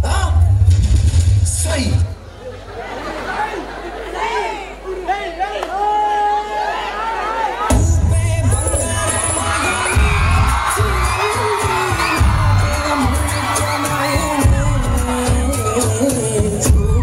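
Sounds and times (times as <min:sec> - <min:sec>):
loud dance music with bass beat: 0:07.7 - 0:17.0.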